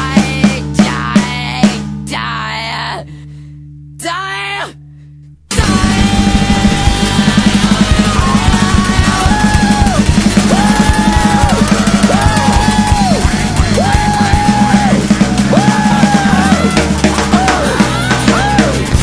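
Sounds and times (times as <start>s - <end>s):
rock drum beat: 0.0s - 2.2s, 5.5s - 19.0s.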